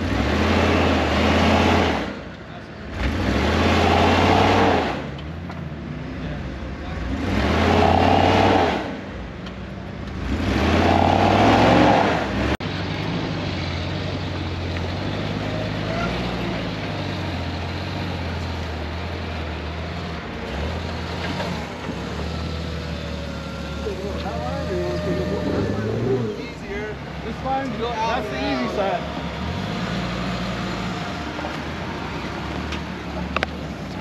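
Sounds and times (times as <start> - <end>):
engine revving hard: 0.0 - 2.2, 2.9 - 5.1, 7.0 - 9.0, 10.2 - 12.6, 20.5 - 26.6
engine running at low revs: 0.0 - 27.8.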